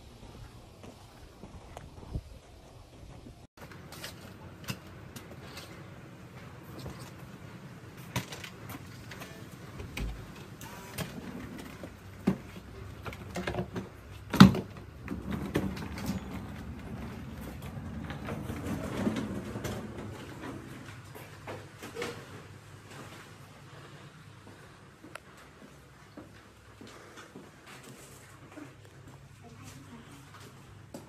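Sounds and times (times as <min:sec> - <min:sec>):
suitcase wheels rumbling on floor: 0:11.1 - 0:24.0.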